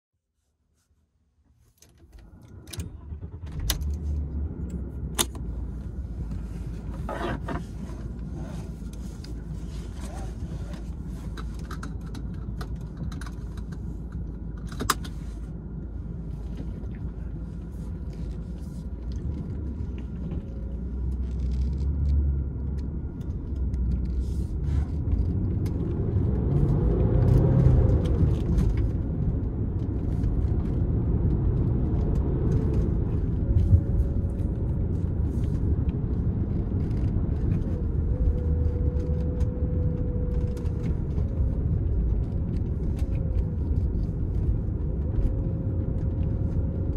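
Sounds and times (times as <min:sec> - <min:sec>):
road rumble: 0:01.4 - 0:46.9
car engine accelerating: 0:15.7 - 0:46.9.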